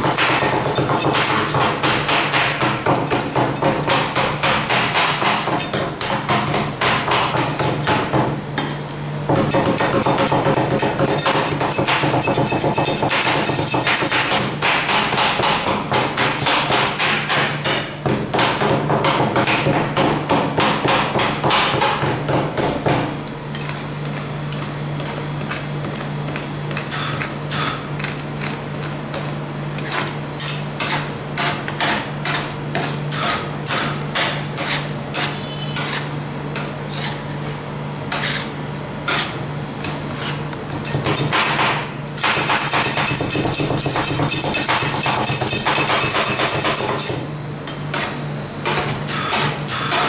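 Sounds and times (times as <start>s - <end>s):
metal spatulas scraping cold plate: 10.0s - 14.3s, 26.7s - 41.0s.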